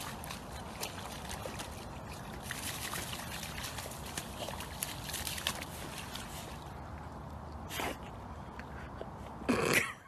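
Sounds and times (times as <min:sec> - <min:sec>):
dog splashing in mud: 0:00.0 - 0:07.0.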